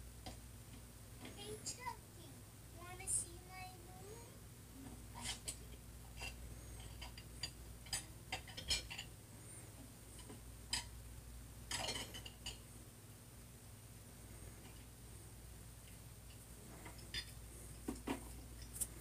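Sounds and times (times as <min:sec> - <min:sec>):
low steady hum: 0:00.0 - 0:19.0
dishes and cutlery clinking: 0:06.2 - 0:09.1, 0:11.7 - 0:12.6
dishes clattering: 0:06.2 - 0:09.1, 0:11.7 - 0:12.6.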